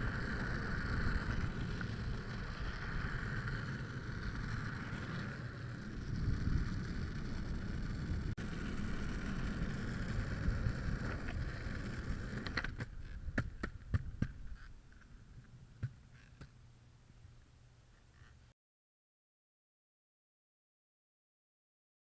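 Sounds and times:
skateboard rolling on asphalt: 0.0 - 16.5.

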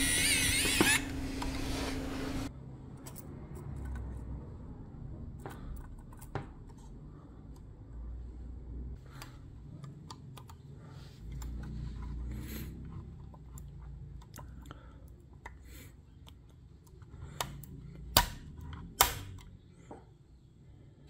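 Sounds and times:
low rubbing of handling: 0.0 - 2.5.

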